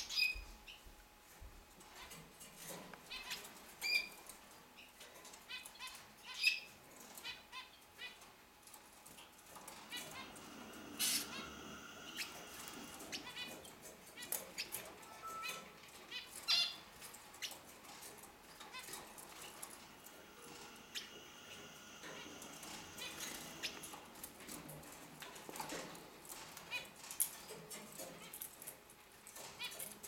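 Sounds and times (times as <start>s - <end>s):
birds chirping and calling: 2.7s - 28.7s
wing flutters: 9.2s - 14.9s, 17.4s - 26.9s.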